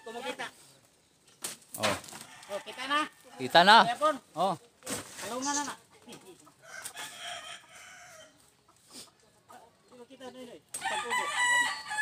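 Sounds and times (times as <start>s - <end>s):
rooster crowing: 6.6s - 8.4s, 10.8s - 12.0s.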